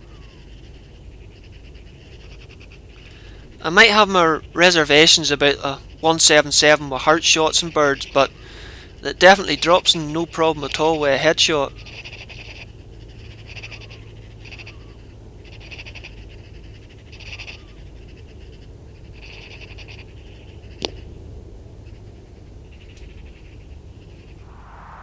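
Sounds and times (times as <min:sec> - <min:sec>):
magpies chattering: 0:00.0 - 0:21.1.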